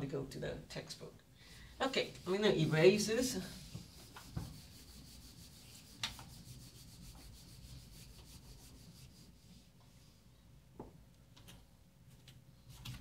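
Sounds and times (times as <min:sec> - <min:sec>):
eraser rubbing on whiteboard: 0:01.8 - 0:09.8.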